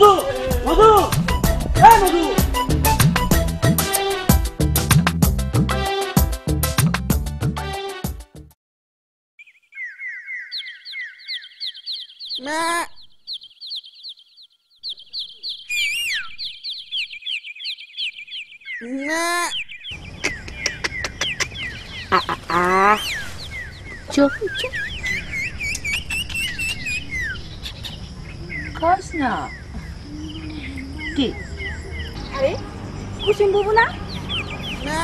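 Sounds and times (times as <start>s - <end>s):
small birds chirping: 9.4s - 35.0s
rising farm animal calls: 10.3s - 17.7s, 18.3s - 23.4s, 26.4s - 35.0s.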